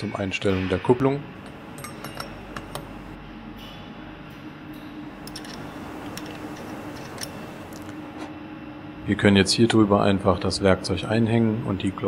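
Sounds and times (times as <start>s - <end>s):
low hum: 1.2s - 9.3s.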